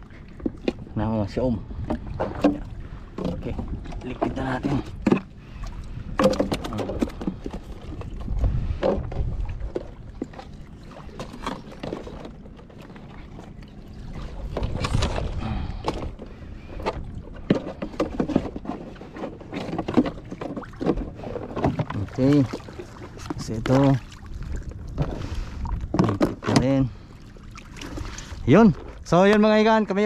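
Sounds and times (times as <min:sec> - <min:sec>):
low rumble: 0:12.6 - 0:17.8.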